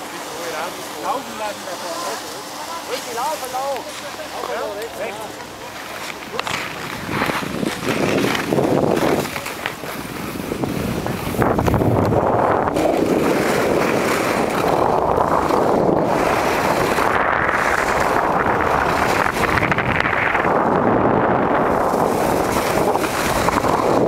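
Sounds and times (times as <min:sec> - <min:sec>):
skis running on packed snow: 0:00.1 - 0:24.0
wind rushing over microphone: 0:06.7 - 0:24.0.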